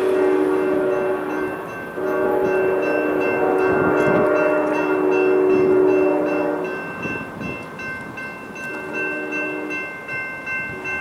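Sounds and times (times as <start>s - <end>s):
locomotive air horn: 0.0s - 6.8s, 8.7s - 9.9s
crossing bell ringing: 0.0s - 11.0s.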